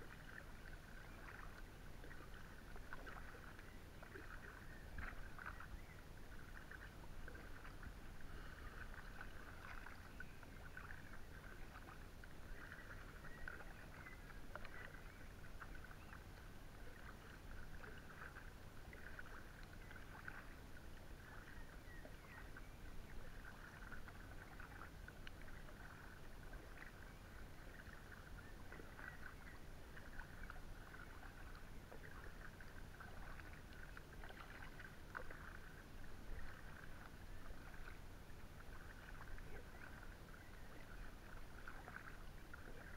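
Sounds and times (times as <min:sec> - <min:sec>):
paddle dipping and splashing: 0:00.0 - 0:42.9.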